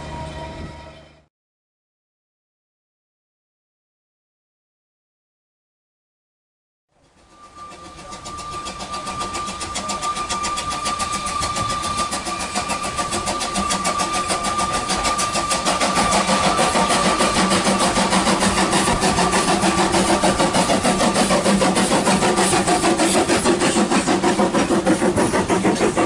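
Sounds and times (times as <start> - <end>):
steam locomotive exhaust beats: 6.9 - 26.0
steady high tone: 7.2 - 21.4.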